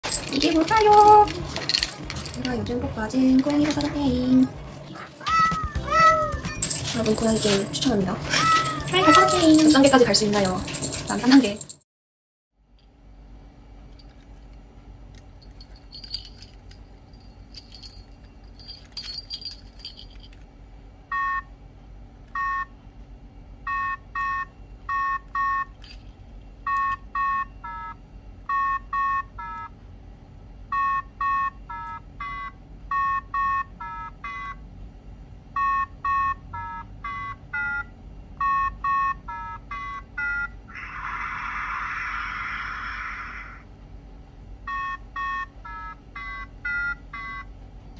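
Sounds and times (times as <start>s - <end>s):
keyring and bell jingling: 0.0s - 2.7s, 6.4s - 11.8s, 15.3s - 20.4s, 25.7s - 26.2s.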